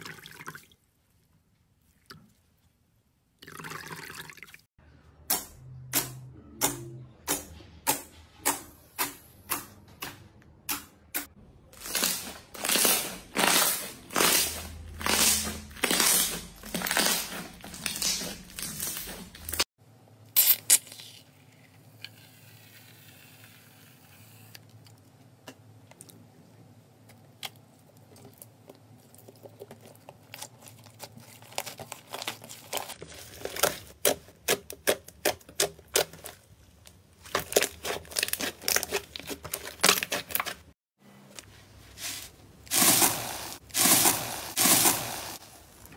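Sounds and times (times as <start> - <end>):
slime crackling: 11.8 - 19.6.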